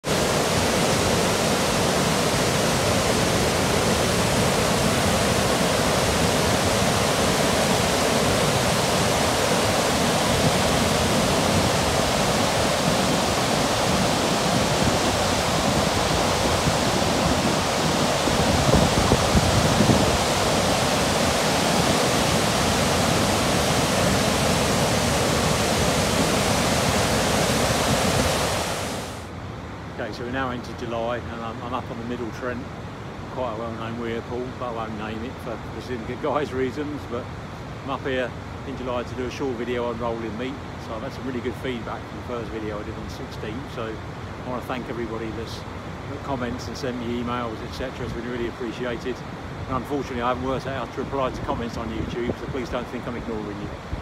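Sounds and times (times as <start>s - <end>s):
water rushing over weir: 0.0s - 29.4s.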